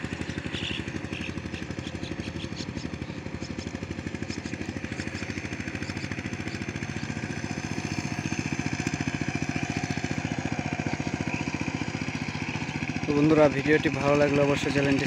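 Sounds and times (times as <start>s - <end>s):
diesel tiller engine chugging: 0.0s - 15.0s.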